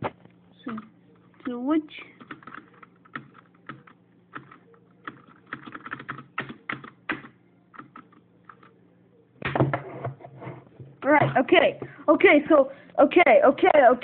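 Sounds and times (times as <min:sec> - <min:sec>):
computer keyboard typing: 0:02.2 - 0:08.8.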